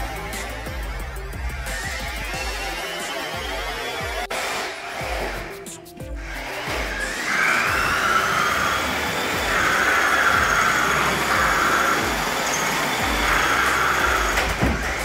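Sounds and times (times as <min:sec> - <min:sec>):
toy car electric motor whining: 0:00.0 - 0:15.0.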